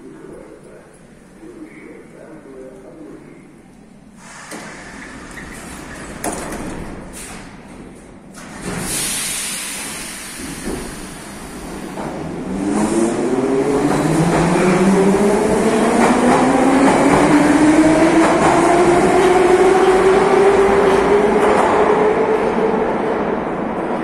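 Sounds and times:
hissing air burst: 8.8s - 11.8s.

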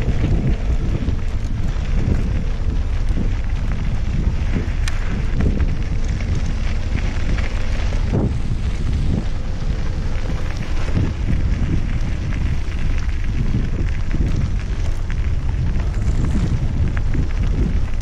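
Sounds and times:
tyres rolling on gravel: 0.0s - 18.0s
wind buffeting microphone: 0.0s - 18.0s.

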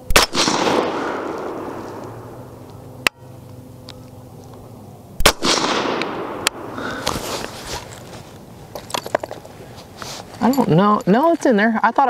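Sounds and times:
suppressed rifle shot echoing: 0.1s - 3.1s, 5.2s - 7.2s.

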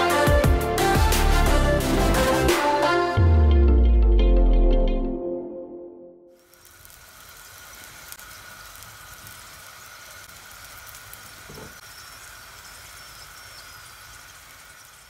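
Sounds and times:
crackling sizzle: 6.3s - 15.0s.

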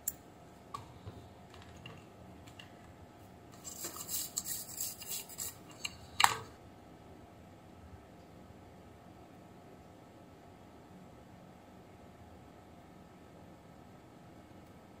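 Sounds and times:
scratchy rustling: 3.6s - 5.8s.

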